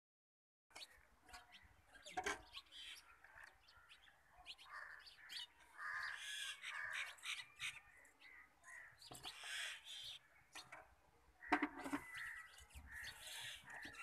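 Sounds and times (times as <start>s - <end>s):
birds calling: 0.7s - 14.0s
harsh caw-like calls: 4.7s - 10.2s, 11.4s - 14.0s.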